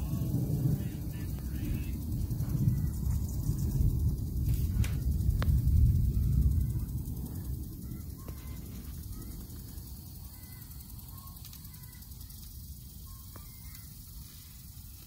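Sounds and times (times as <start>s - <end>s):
thunder rumbling: 0.0s - 10.9s.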